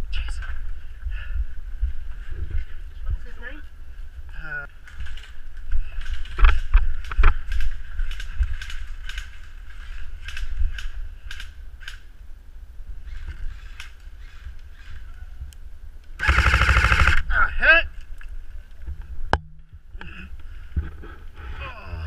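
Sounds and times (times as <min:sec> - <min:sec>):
airsoft rifle full-auto fire: 0:16.2 - 0:17.2.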